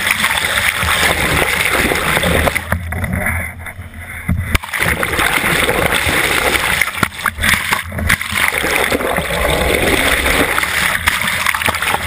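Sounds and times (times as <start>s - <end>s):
water rushing and splashing: 0.0s - 3.2s, 4.4s - 12.0s.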